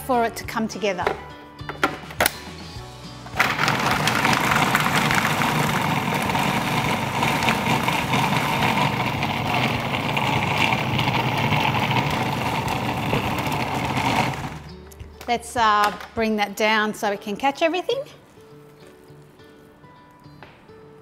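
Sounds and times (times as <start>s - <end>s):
food processor grinding nuts: 3.4s - 14.7s.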